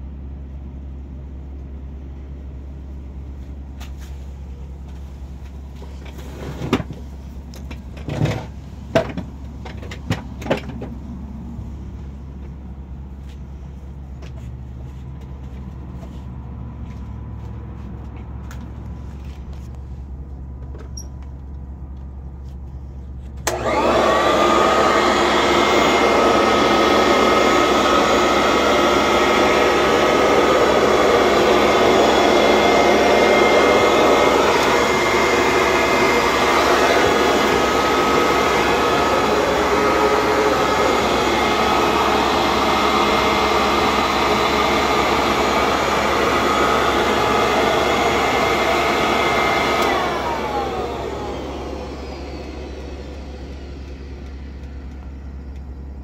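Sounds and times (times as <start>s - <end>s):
vacuum cleaner motor running: 23.4s - 56.0s
low hum: 50.7s - 56.0s.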